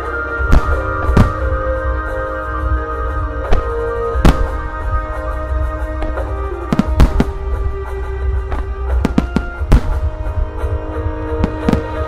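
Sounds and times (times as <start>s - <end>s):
music: 0.0s - 12.0s
firework shells booming: 0.4s - 2.0s, 3.3s - 12.0s.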